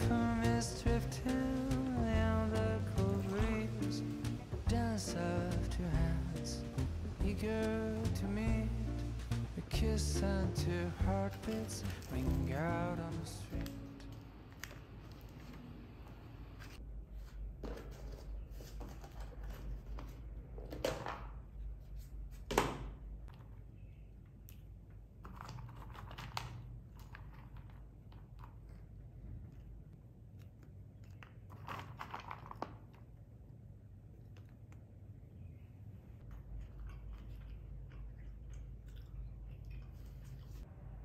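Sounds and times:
low steady hum: 0.0s - 20.8s, 32.8s - 41.0s
nuts dropping clicks and rustles: 31.0s - 33.1s.

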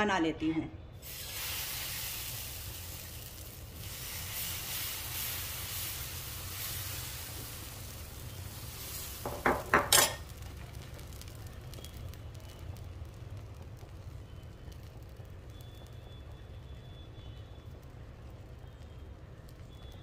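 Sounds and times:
batter sizzling on a pan: 1.0s - 20.0s
metal ladle clinking on pan: 9.7s - 10.3s.

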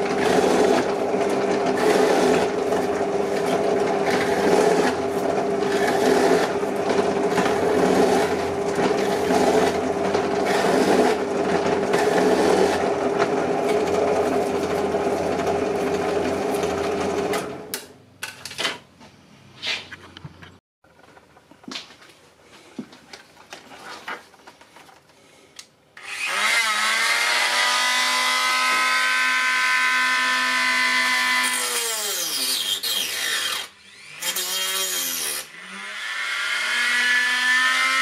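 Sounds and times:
drill press cutting metal: 0.0s - 17.9s.

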